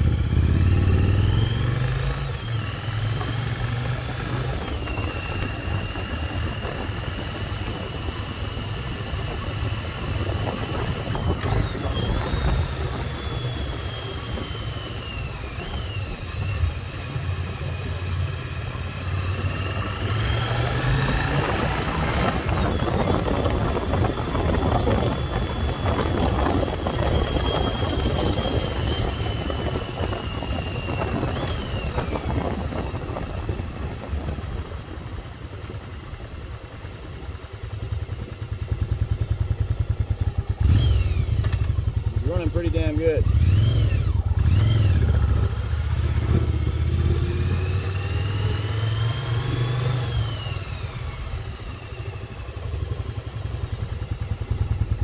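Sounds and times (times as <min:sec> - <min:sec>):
motorcycle engine running: 0:00.0 - 0:55.0
wind rush on microphone: 0:03.4 - 0:17.4, 0:19.8 - 0:39.4.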